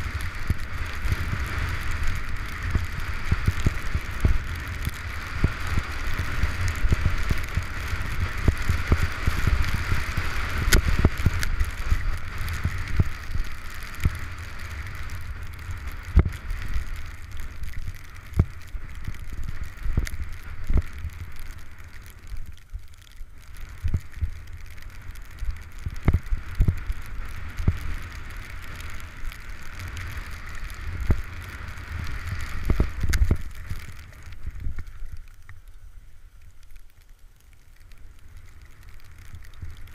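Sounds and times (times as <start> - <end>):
skis hissing through snow: 0.0 - 17.2, 26.3 - 34.6
wind buffeting microphone: 0.0 - 21.4, 23.7 - 35.2.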